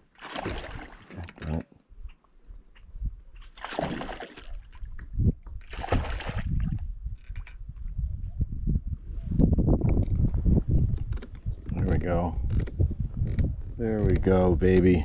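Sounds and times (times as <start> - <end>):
water splashing: 0.0 - 1.4, 3.4 - 4.9, 5.6 - 6.8.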